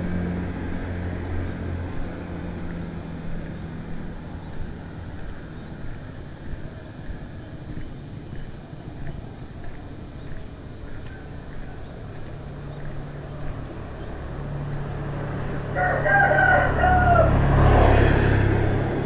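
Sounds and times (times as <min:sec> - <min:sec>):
motorbike engine passing: 0:00.0 - 0:19.0
rooster crowing: 0:15.6 - 0:18.2.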